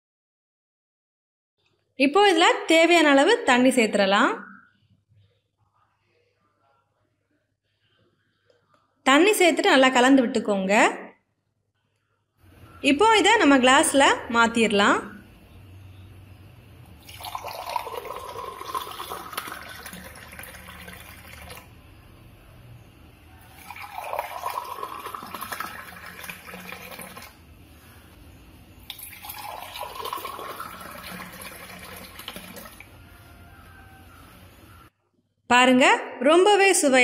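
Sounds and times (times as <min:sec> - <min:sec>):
liquid pouring into glass: 0:17.0 - 0:21.8, 0:23.4 - 0:27.4, 0:28.8 - 0:32.9.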